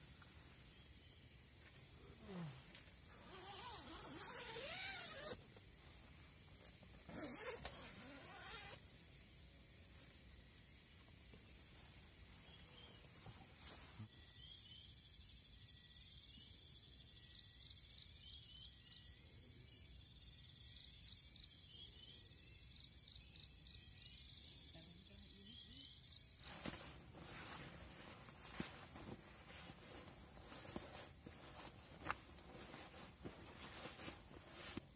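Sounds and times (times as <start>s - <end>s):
insects chirring: 0.0s - 34.9s
nylon rustling: 2.2s - 5.4s, 6.6s - 8.8s, 26.4s - 34.9s.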